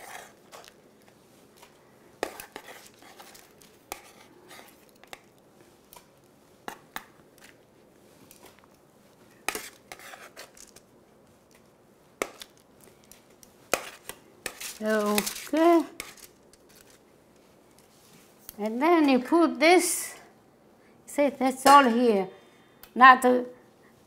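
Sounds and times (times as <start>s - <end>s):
metal utensil scraping baking sheet: 0.0s - 0.7s, 9.5s - 10.8s, 13.7s - 17.0s.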